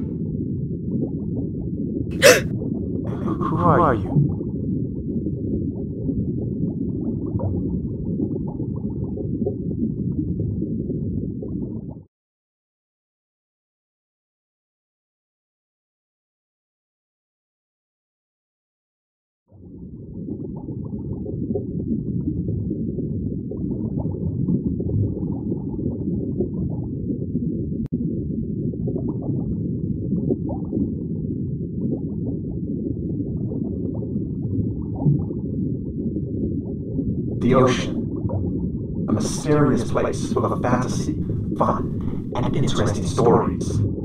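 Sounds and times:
muffled underwater rumble: 0.0s - 12.1s, 19.6s - 44.0s
faint bubbling: 2.1s - 2.4s, 37.4s - 38.0s, 39.1s - 44.0s.

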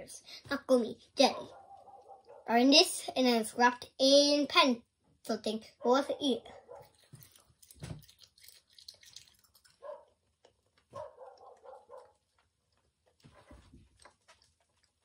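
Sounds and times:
child chewing sweet: 6.7s - 15.0s.

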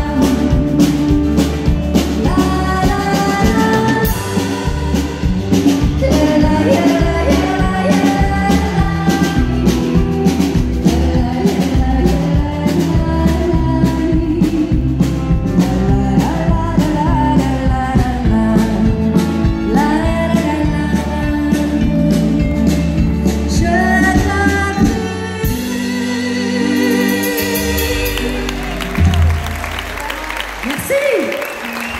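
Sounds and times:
steady drum beat: 0.0s - 20.3s
guitar: 0.0s - 31.9s
woman singing country music: 0.0s - 31.9s.

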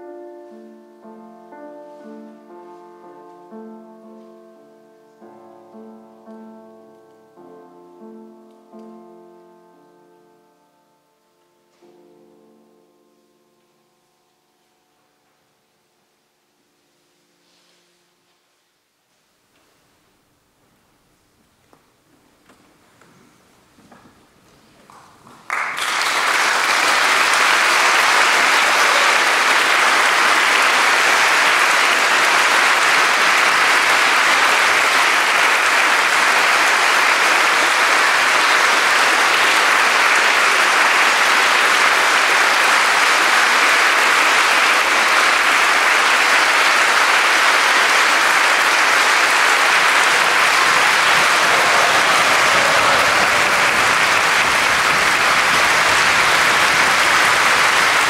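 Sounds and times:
audience applauding: 25.4s - 58.0s.

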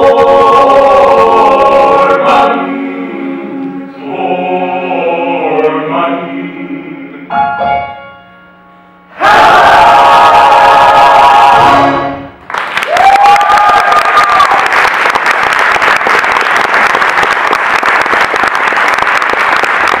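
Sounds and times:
audience applause: 12.5s - 20.0s
cheering whoop: 12.8s - 14.9s.

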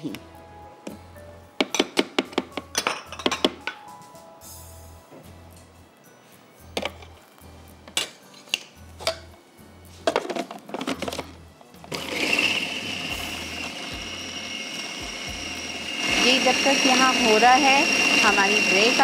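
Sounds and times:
food processor motor running: 11.9s - 19.0s.

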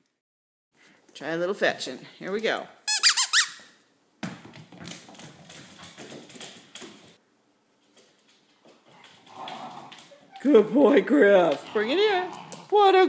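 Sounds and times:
ball hitting wooden floor: 4.2s - 7.2s
puppy paws tapping on floor: 4.2s - 7.2s, 7.8s - 10.7s.

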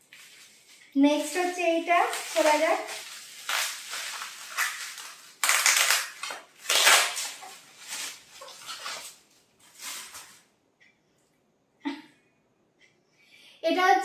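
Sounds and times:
bubble wrap crinkling: 0.0s - 10.5s.

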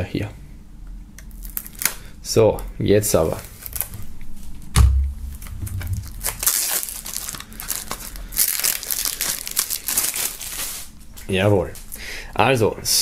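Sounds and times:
cellophane wrap tearing and crinkling: 1.3s - 2.0s, 3.3s - 4.0s, 5.4s - 11.0s
thump: 4.8s - 6.0s.

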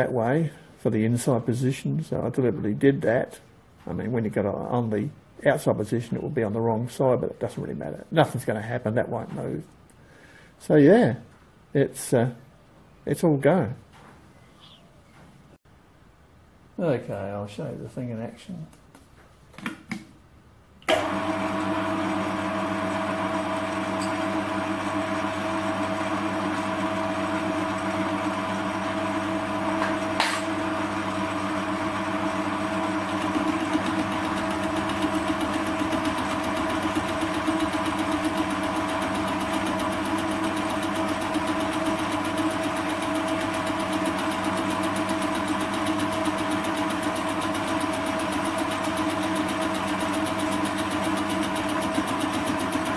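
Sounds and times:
lathe cutting metal: 21.0s - 52.9s
metal lathe motor whining: 21.0s - 52.9s.

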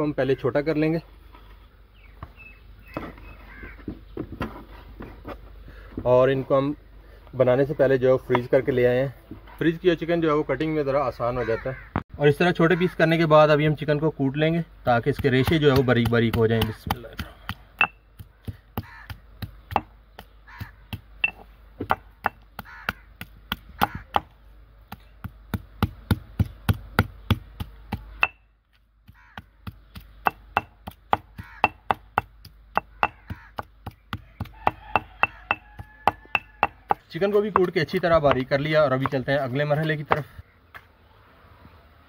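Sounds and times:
chicken being pounded: 18.2s - 24.3s, 25.2s - 28.4s, 29.0s - 37.0s.

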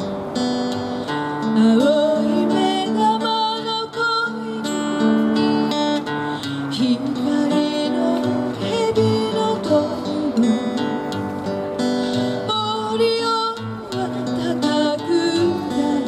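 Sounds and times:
acoustic guitar strummed and picked: 0.0s - 16.0s
woman singing gently: 1.6s - 4.8s, 6.7s - 10.8s, 12.5s - 16.0s.

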